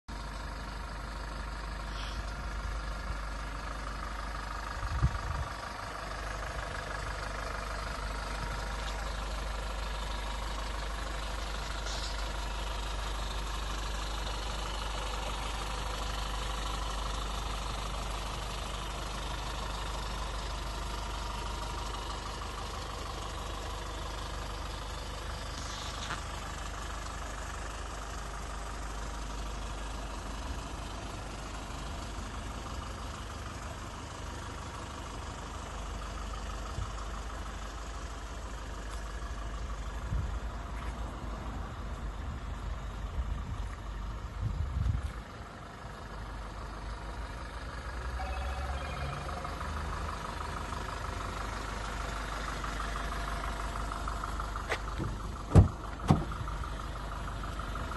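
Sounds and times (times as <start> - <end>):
diesel engine idling: 0.1 - 57.9
thump: 55.0 - 56.3.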